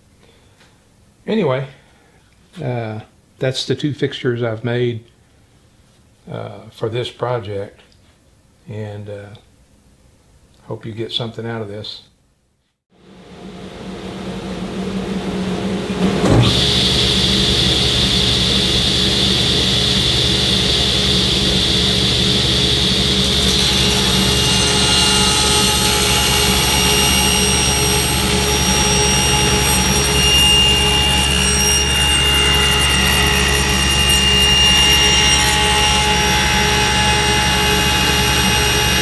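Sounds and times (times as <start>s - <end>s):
table saw running: 13.1s - 39.0s
sharp knock: 16.0s - 16.7s.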